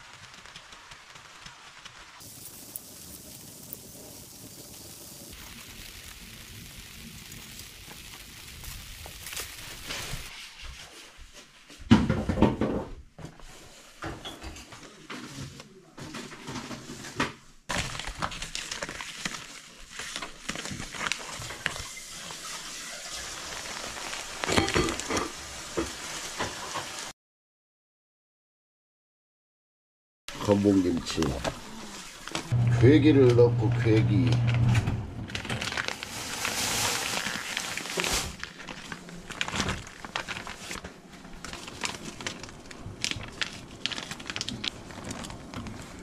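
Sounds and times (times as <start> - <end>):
plastic pouches crinkling: 0.0 - 10.3, 17.7 - 25.3, 35.3 - 46.0
rain hiss: 0.0 - 10.3, 21.6 - 27.1, 30.3 - 34.3, 35.8 - 38.6
paper leaflet rustling: 0.0 - 11.1, 17.7 - 21.9, 35.3 - 46.0.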